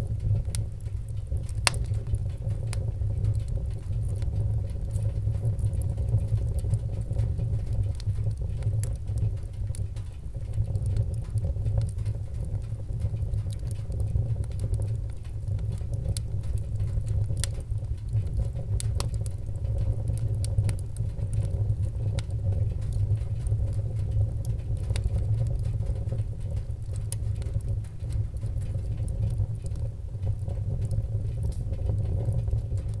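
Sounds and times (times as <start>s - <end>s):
fire burning with crackles: 0.0s - 33.0s.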